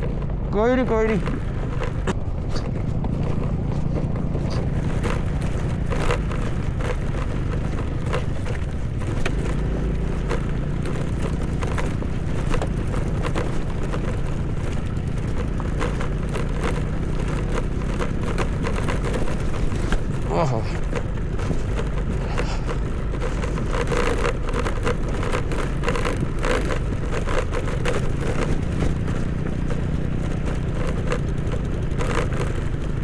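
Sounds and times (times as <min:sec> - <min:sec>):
bike clicking and knocking over rocks: 0:00.0 - 0:33.0
motorbike engine running: 0:00.0 - 0:33.0.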